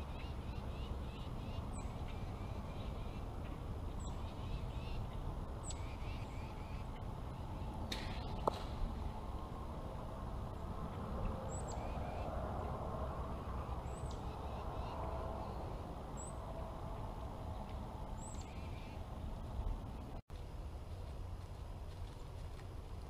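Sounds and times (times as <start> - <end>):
bird calls: 0.0 - 8.5, 10.9 - 12.3, 13.3 - 19.2
wind rumble on microphone: 0.0 - 23.0.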